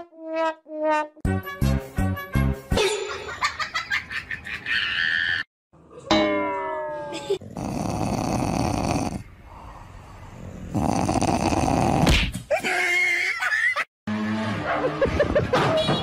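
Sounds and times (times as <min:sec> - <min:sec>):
music: 0:00.1 - 0:03.2
dog groaning and grumbling: 0:07.1 - 0:09.3, 0:10.2 - 0:13.0.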